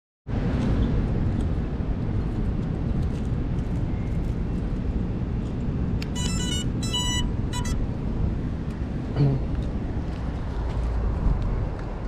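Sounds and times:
steady low rumble: 0.3 - 12.0
electronic beeps from drone motors: 6.1 - 7.8.

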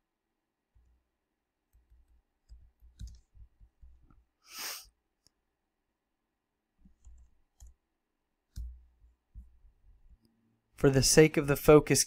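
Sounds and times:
keyboard key presses: 1.7 - 4.0
short hiss: 4.5 - 4.9.

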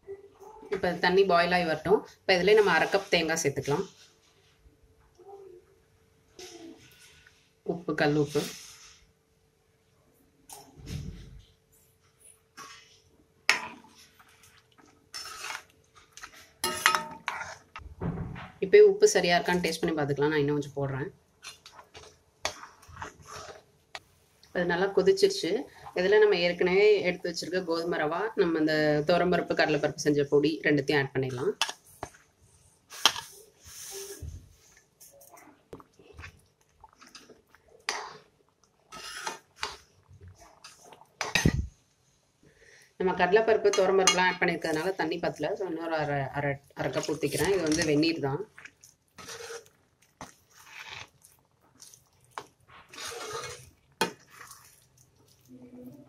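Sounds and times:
metal spoon scraping pan: 15.1 - 17.8, 21.4 - 23.7, 38.9 - 39.9, 43.6 - 45.0, 46.8 - 48.2, 49.2 - 51.2, 51.8 - 54.8.

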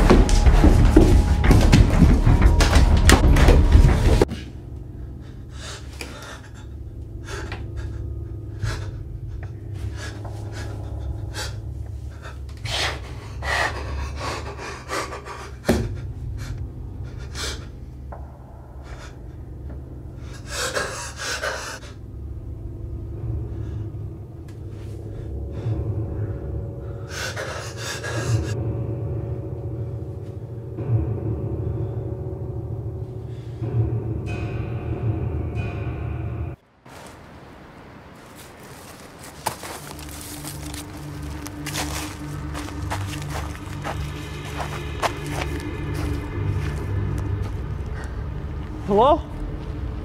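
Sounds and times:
man breathing heavily: 0.0 - 28.6, 38.6 - 48.6.

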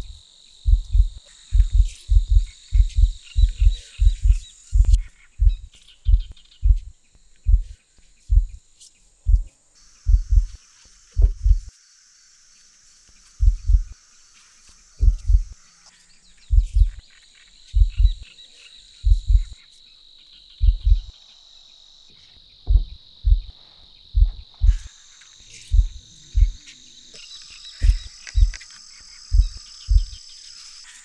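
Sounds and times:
deep heavy thumps: 0.0 - 6.9, 7.5 - 8.6, 9.3 - 9.5, 10.1 - 10.6, 11.2 - 11.7, 13.4 - 13.9, 15.0 - 15.5, 16.5 - 17.0, 17.8 - 18.2, 19.0 - 19.6, 20.6 - 21.1, 22.7 - 24.9, 25.7 - 26.6, 27.8 - 28.6, 29.3 - 30.2
insects trilling: 0.0 - 31.0.

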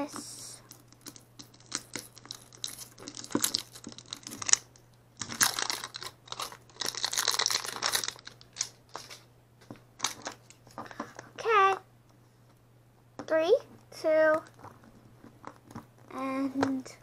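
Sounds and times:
plastic wrap crinkling: 0.0 - 11.2
plastic wrap tearing: 0.7 - 9.2, 10.0 - 10.7.

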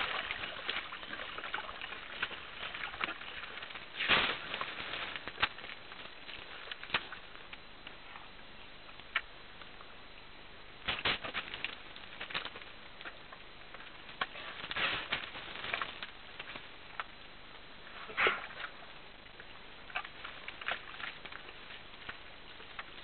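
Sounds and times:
wet mud squelching: 0.0 - 7.6
steady hiss: 0.0 - 23.0.

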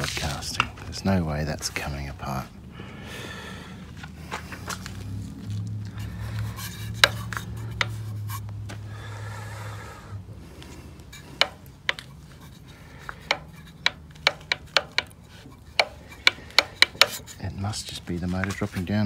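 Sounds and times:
low steady hum: 0.0 - 19.0
metal tools clicking and tapping: 5.9 - 8.5, 10.6 - 17.4.

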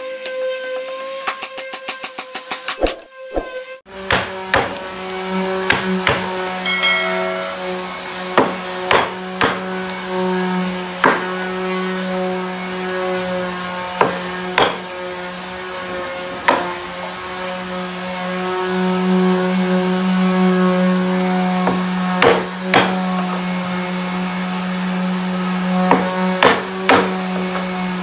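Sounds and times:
hammer striking chisel: 4.1 - 4.9, 5.7 - 9.6, 14.0 - 14.8, 25.9 - 27.2.

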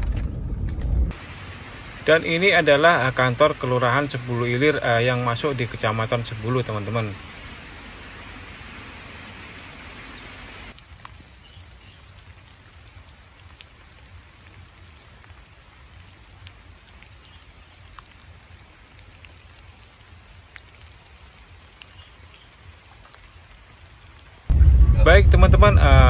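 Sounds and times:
low rumble: 0.0 - 2.0, 24.5 - 26.0
rain hiss: 0.6 - 26.0
raindrops ticking: 9.8 - 26.0.

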